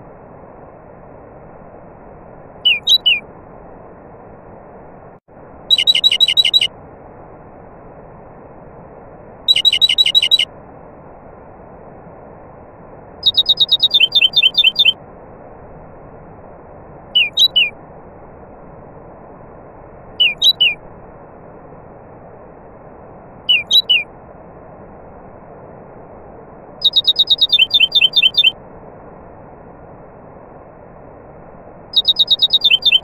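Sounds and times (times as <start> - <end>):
nightingale singing: 2.6 - 3.3, 5.7 - 6.7, 9.5 - 10.5, 13.2 - 15.0, 17.2 - 17.8, 20.2 - 20.8, 23.5 - 24.1, 26.8 - 28.6, 31.9 - 33.0.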